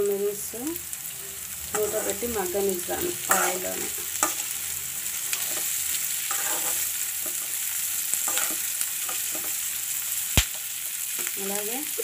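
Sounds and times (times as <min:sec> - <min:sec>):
vegetables sizzling in hot oil: 0:00.0 - 0:12.0
spoon scraping a metal pan: 0:03.2 - 0:04.5, 0:05.3 - 0:09.6.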